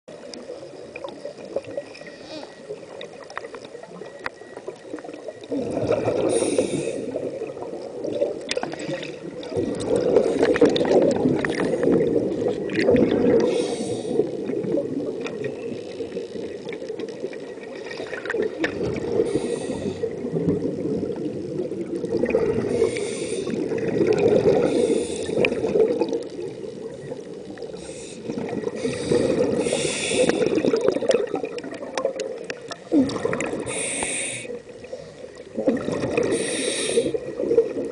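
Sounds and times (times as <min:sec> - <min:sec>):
muffled underwater rushing water: 0:00.1 - 0:37.9
bursts of hiss: 0:33.6 - 0:34.6, 0:36.3 - 0:37.2.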